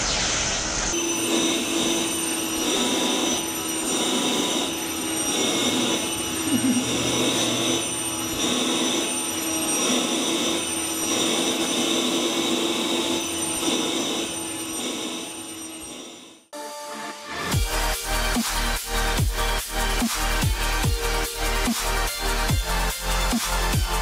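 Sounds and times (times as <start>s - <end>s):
vacuum cleaner running: 0.7s - 24.0s.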